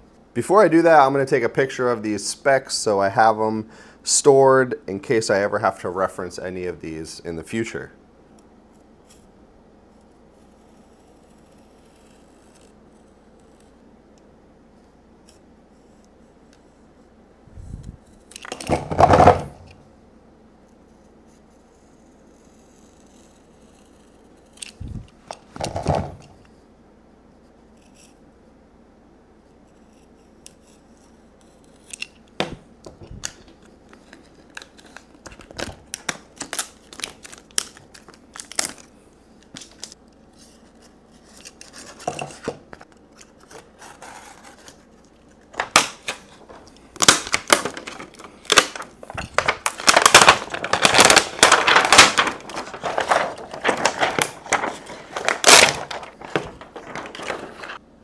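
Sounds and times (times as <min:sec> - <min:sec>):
plastic wrap crinkling and tearing: 0:33.2 - 0:38.9, 0:43.3 - 0:57.8.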